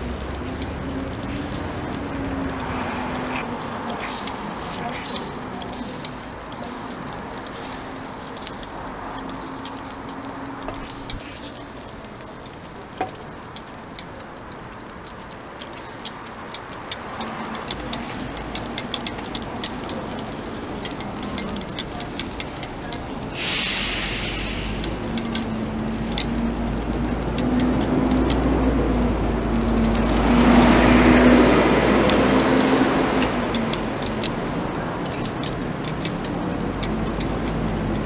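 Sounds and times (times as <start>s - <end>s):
low vehicle engine rumble: 0.0s - 38.0s
steady sizzle: 0.0s - 38.0s
short burst of hiss: 23.4s - 24.8s.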